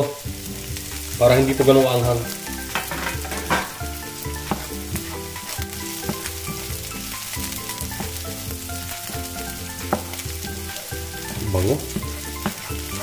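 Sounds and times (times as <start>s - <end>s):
food sizzling in oil: 0.0s - 13.0s
wooden spoon scraping pan: 2.5s - 8.2s, 9.4s - 13.0s.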